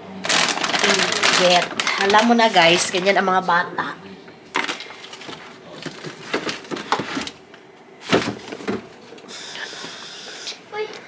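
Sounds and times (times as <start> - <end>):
items knocking and clattering: 4.5 - 7.4, 8.0 - 9.0.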